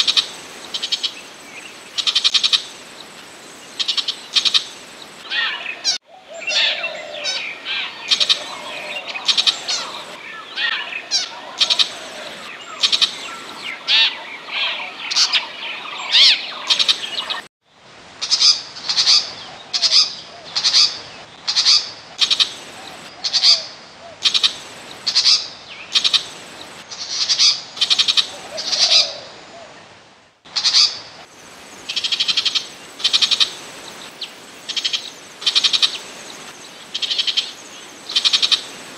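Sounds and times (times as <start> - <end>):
harsh chattering shrike calls: 5.3 - 17.5.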